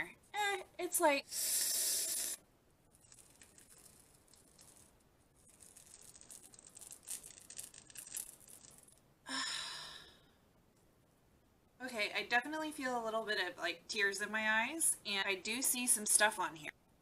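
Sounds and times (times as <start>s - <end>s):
peel-off mask tearing: 3.0s - 9.0s.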